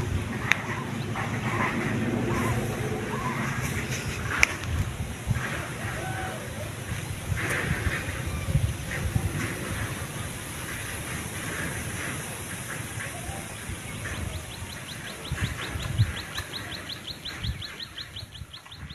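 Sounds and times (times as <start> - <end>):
cow cropping grass: 0.0 - 5.9.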